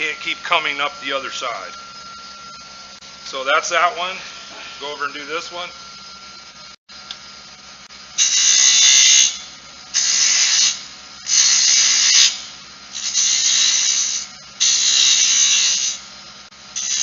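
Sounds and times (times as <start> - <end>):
lathe humming: 0.0 - 7.9
gouge hissing cuts on wood: 10.0 - 12.4, 13.0 - 16.0.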